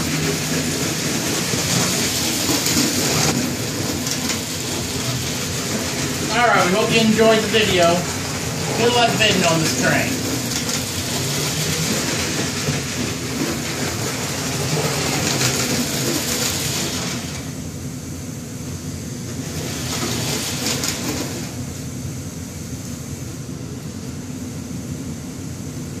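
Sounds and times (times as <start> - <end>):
toy train wheels clattering: 0.1 - 6.8, 8.8 - 17.2
toy train motor whirring: 0.7 - 6.3, 10.2 - 17.4, 19.4 - 21.5.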